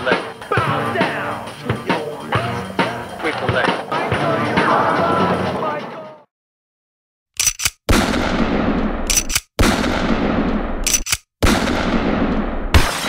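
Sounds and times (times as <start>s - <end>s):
rapid gunfire bursts: 7.4s - 13.0s.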